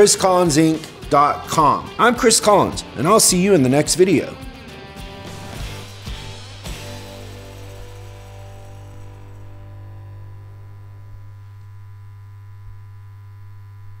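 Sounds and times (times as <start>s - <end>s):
music chord ringing out: 1.4s - 12.2s
steady low hum: 5.1s - 14.0s.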